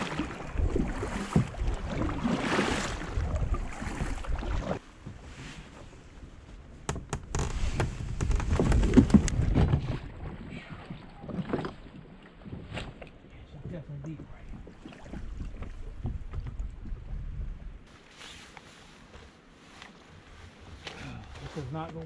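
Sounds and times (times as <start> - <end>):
paddle strokes splashing water: 0.0 - 6.0, 8.7 - 20.9
wind rumble on microphone: 14.2 - 17.9.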